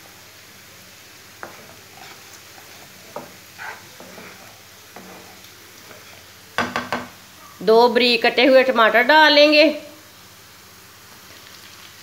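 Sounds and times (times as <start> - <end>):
onions sizzling in oil: 0.0 - 12.0
spatula scraping a pan: 1.3 - 7.1.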